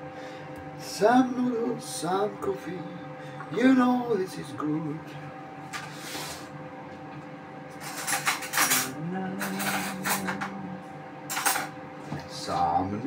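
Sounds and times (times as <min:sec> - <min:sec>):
cutlery clinking against dishes: 0:07.8 - 0:10.5, 0:11.3 - 0:11.8.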